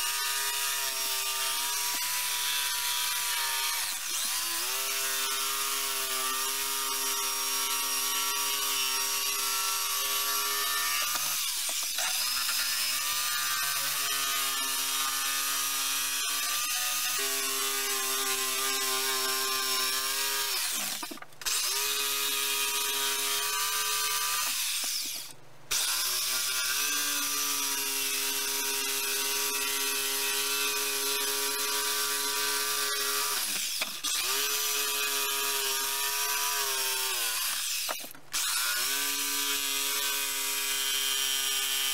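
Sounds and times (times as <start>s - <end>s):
electric jigsaw cutting wood: 0.0s - 41.9s.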